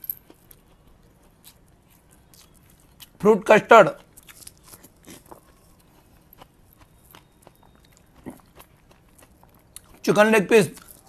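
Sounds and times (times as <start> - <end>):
man chewing: 0.0 - 3.2, 3.9 - 10.0.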